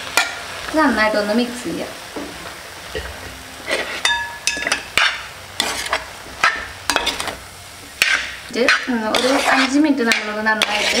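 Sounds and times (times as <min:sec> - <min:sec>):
metal spoon stirring in steel pot: 0:03.7 - 0:07.4, 0:08.0 - 0:11.0
spoon knocking on pot: 0:04.0 - 0:05.2.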